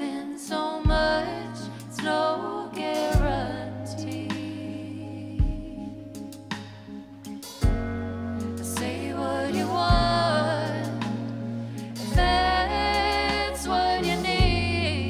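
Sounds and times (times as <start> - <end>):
women singing in harmony: 0.0 - 6.1, 8.6 - 15.0
electric keyboard: 0.0 - 15.0
deep bass notes: 0.9 - 15.0.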